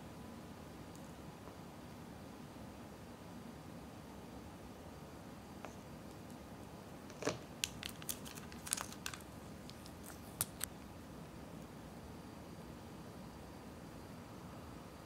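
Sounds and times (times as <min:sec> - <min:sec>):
sachet tearing and crinkling: 0:07.6 - 0:10.7.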